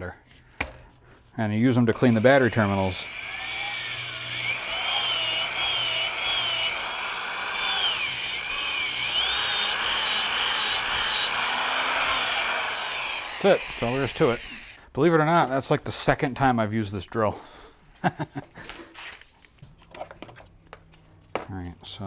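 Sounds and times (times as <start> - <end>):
power drill whining: 2.0 - 14.8.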